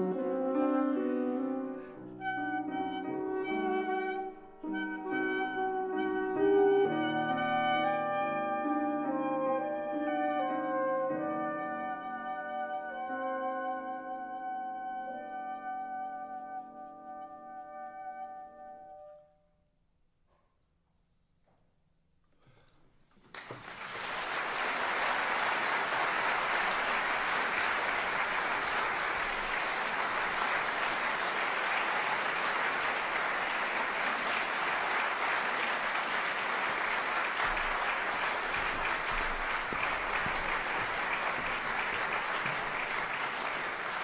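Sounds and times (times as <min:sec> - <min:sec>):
audience applauding: 0:23.3 - 0:44.0.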